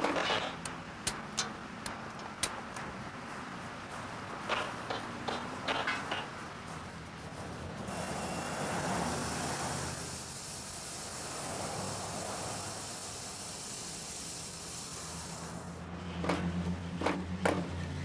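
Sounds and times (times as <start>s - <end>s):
passing vehicle rushing: 4.0s - 10.2s, 11.0s - 13.0s.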